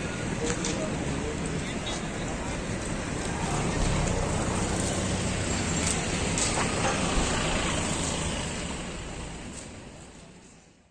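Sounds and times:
fire crackles and pops: 0.4s - 8.1s
fire roaring: 2.2s - 9.2s.

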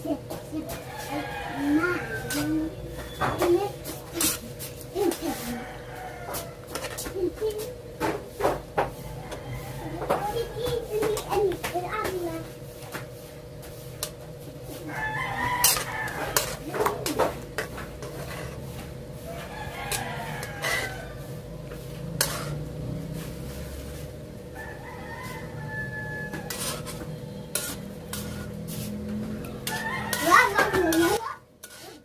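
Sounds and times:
rooster crowing: 0.8s - 2.5s, 5.4s - 6.7s, 9.0s - 10.6s, 14.8s - 16.5s, 19.2s - 21.6s, 24.5s - 27.5s, 29.2s - 31.2s.

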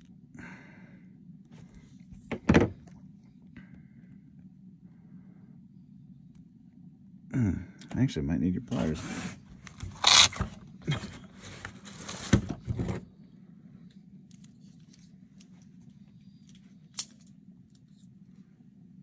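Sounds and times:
faint low hum: 0.0s - 19.0s
bag rustling and scraping: 8.7s - 13.1s.

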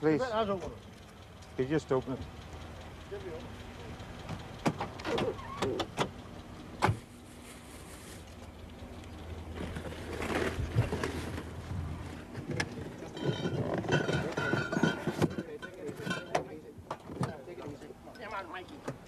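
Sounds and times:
car latch clicking and knocking: 4.3s - 6.2s
rustling of boxes and sacks: 7.0s - 8.3s, 9.6s - 12.3s.

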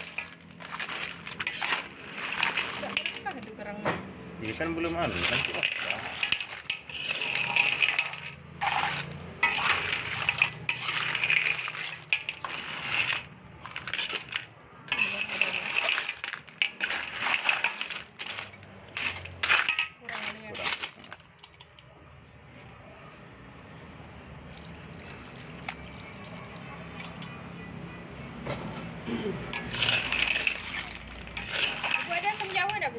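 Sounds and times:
shells clattering in metal wok: 0.0s - 3.7s, 4.4s - 21.8s, 29.5s - 32.9s.

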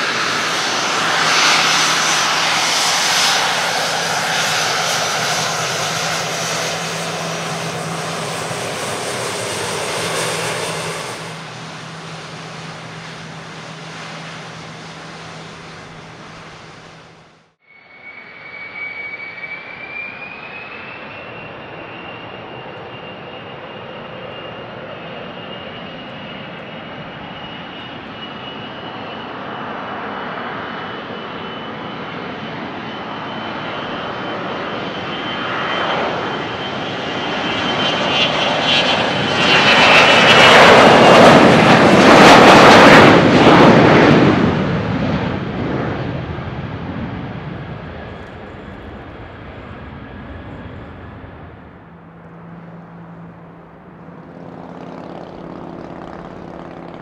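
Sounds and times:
steady high whine: 0.0s - 28.7s, 44.8s - 57.0s
airplane passing close by: 0.0s - 57.0s.

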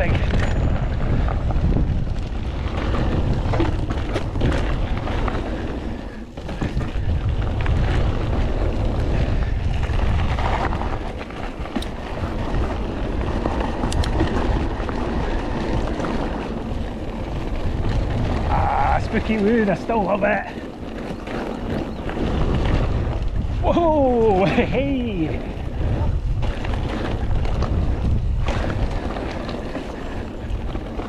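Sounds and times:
bike clicks and rattles: 0.0s - 31.0s
tyres rumbling on dirt: 0.0s - 31.0s
wind buffeting microphone: 0.0s - 31.0s.

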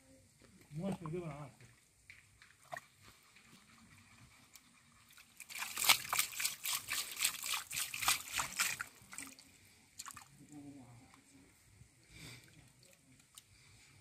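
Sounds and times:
hand splashing in muddy water: 5.4s - 10.3s.

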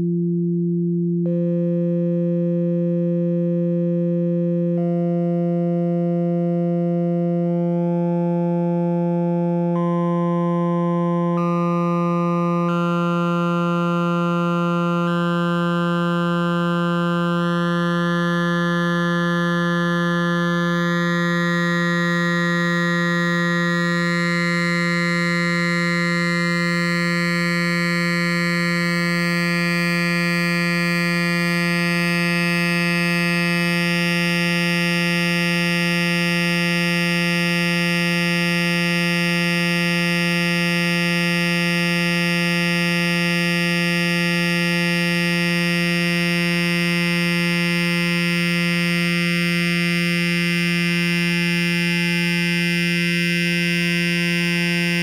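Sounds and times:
steady synthesized tone: 9.7s - 33.8s.

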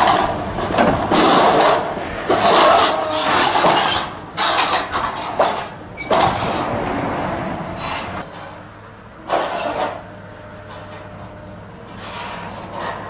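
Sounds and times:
metal creaking and tearing: 0.0s - 6.8s
excavator engine hum: 0.0s - 13.0s.

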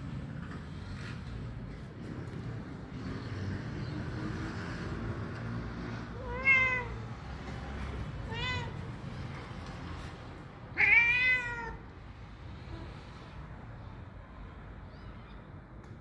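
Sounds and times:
cat meowing: 6.2s - 7.2s, 8.2s - 9.0s, 10.7s - 11.9s.

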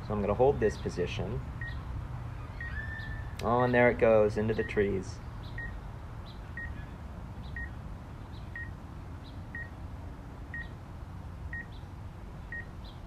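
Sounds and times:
steady low background noise: 0.0s - 13.0s
electronic warning beeps: 5.6s - 5.8s.

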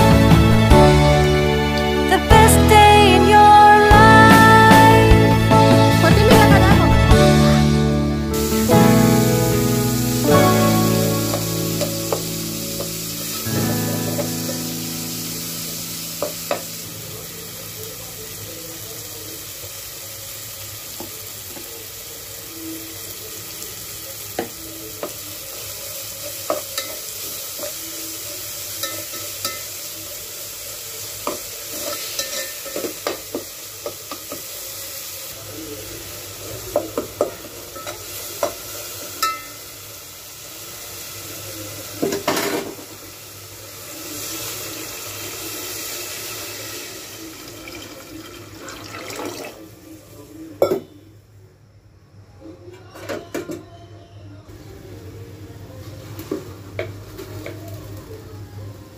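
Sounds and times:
food sizzling in oil: 0.0s - 50.8s, 54.5s - 58.8s
water pouring into pot: 40.3s - 50.0s.

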